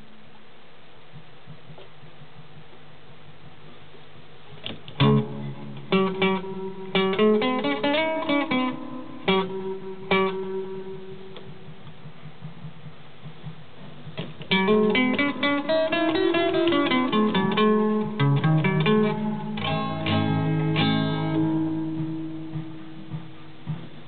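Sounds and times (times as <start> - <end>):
guitar plucked notes and chords: 4.6 - 12.1, 14.2 - 24.0.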